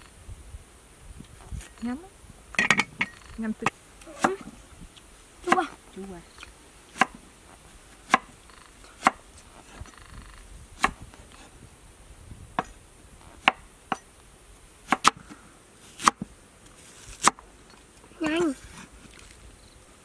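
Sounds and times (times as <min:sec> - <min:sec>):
cleaver chopping on wooden board: 0:03.6 - 0:04.4, 0:08.0 - 0:08.3, 0:09.0 - 0:09.2, 0:10.8 - 0:11.0, 0:13.4 - 0:14.1, 0:14.9 - 0:15.2, 0:16.0 - 0:16.3, 0:17.2 - 0:17.4.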